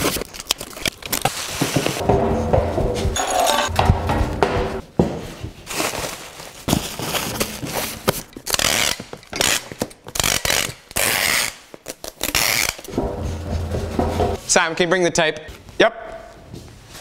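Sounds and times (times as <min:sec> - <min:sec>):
bubble wrap rustling: 0:05.2 - 0:09.2
packing tape ripping off tape gun: 0:06.9 - 0:12.9.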